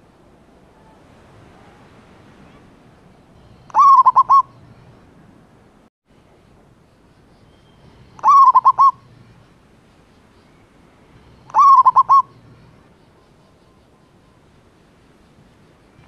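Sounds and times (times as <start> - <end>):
dove cooing song: 3.7 - 4.6, 8.1 - 9.2, 11.2 - 12.8.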